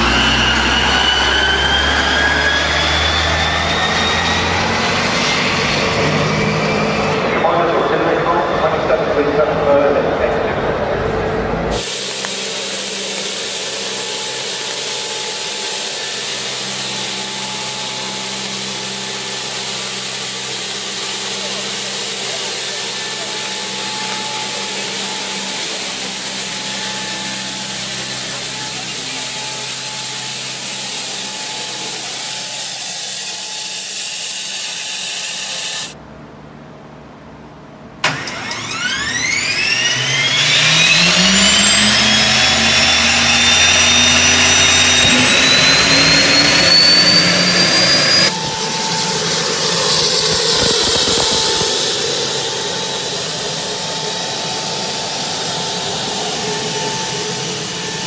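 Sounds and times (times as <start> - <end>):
engine hum with hiss: 0.0 - 58.0
gas turbine whine rising: 0.0 - 58.0
engine starter click: 38.0 - 40.0.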